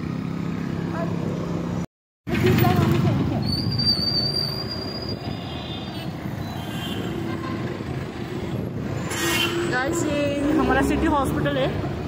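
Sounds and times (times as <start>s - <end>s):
vehicle road noise: 0.0s - 12.0s
high thin squeal: 3.4s - 5.4s, 9.0s - 10.2s.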